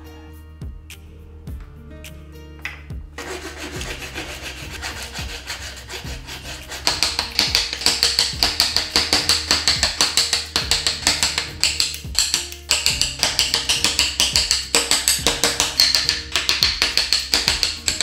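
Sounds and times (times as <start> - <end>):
hand saw cutting wood: 3.2 - 11.8.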